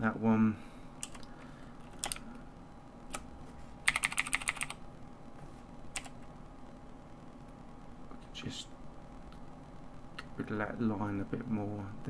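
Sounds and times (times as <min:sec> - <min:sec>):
computer mouse clicks: 0:01.0 - 0:02.2, 0:03.9 - 0:04.8.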